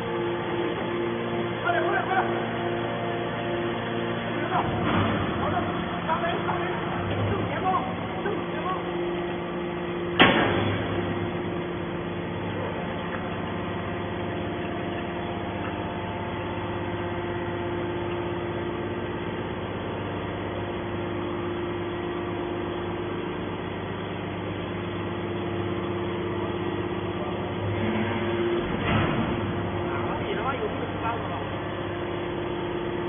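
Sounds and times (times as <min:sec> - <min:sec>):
hydraulic power unit humming: 0:00.0 - 0:33.0
sharp metal bang: 0:10.2 - 0:11.0.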